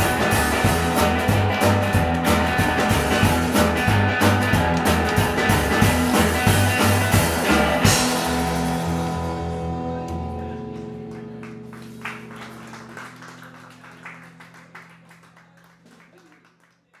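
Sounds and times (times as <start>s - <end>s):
upright bass notes: 0.0s - 13.0s.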